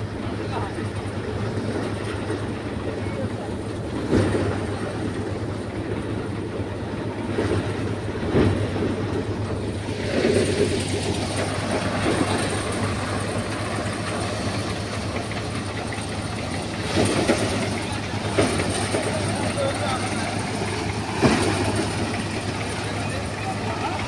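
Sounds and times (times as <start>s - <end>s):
thresher running: 7.8s - 24.0s.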